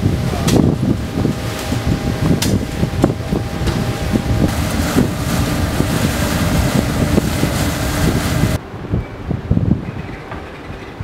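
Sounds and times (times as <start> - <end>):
water gushing: 0.0 - 8.6
ship engines humming: 0.0 - 8.7
wind buffeting microphone: 0.0 - 11.0.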